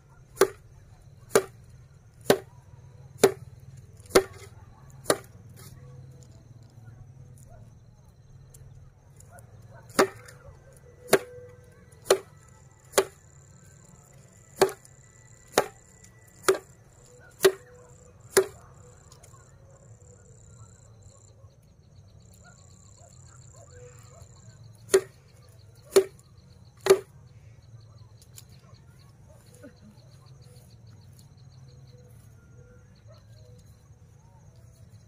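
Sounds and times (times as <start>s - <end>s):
rice stalks whacking a board: 0.4s - 0.6s, 1.3s - 1.6s, 2.2s - 2.5s, 3.2s - 5.7s, 9.9s - 10.3s, 11.1s - 11.4s, 12.0s - 13.2s, 14.6s - 14.8s, 15.5s - 15.8s, 16.4s - 16.8s, 17.4s - 17.7s, 18.3s - 18.6s, 24.9s - 25.2s, 25.9s - 26.2s, 26.8s - 27.1s.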